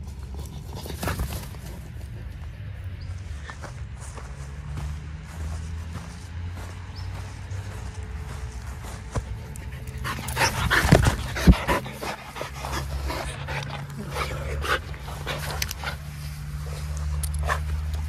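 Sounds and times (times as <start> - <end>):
dog panting: 9.4 - 18.0
sharp thumps and rustles: 10.1 - 11.9.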